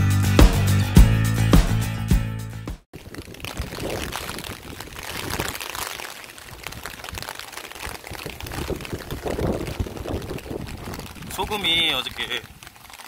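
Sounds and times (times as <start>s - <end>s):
heavy rain on wet street: 3.0s - 13.0s.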